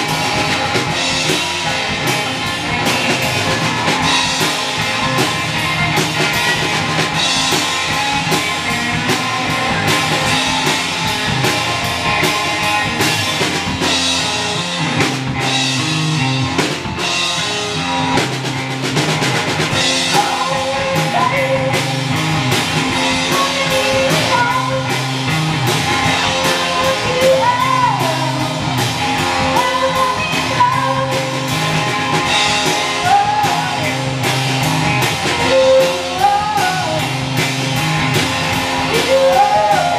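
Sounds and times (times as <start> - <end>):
live rock band playing: 0.0 - 39.9
person singing: 20.0 - 22.1, 23.1 - 25.1, 26.1 - 31.6, 32.6 - 34.1, 35.2 - 37.2, 38.8 - 39.9.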